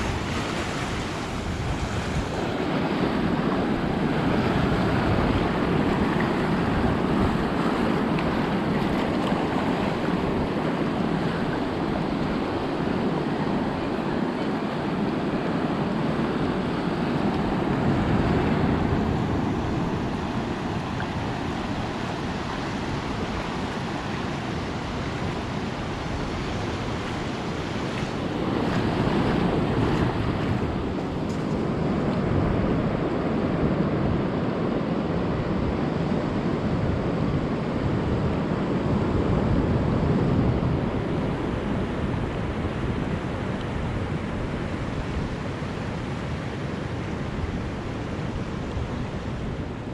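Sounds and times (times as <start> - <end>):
ocean waves breaking on beach: 0.0 - 49.9
wind rumbling on microphone: 0.0 - 49.9.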